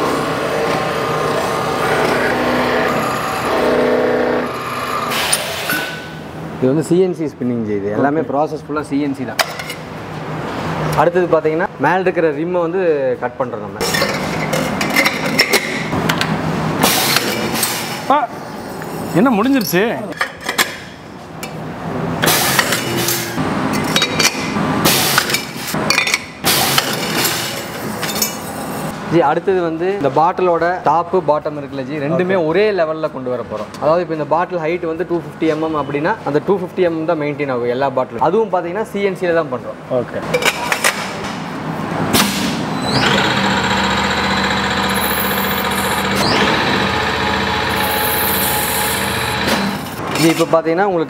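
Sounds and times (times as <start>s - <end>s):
rising machine whine: 0.0s - 5.2s, 42.9s - 50.0s
machine hum and whir: 0.0s - 6.6s, 41.6s - 50.2s
cutting disc scraping metal: 42.9s - 50.0s.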